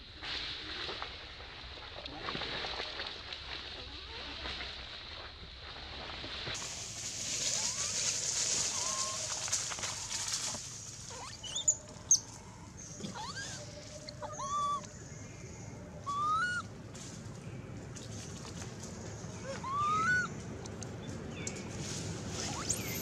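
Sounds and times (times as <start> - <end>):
steady high hiss: 6.6 - 11.1
high animal calls: 7.5 - 10.2, 12.9 - 15.0, 16.0 - 16.7, 19.4 - 20.4.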